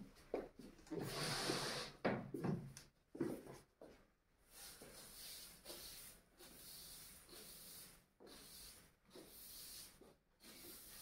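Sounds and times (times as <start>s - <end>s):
broom sweeping floor: 1.0s - 2.0s, 3.3s - 11.0s.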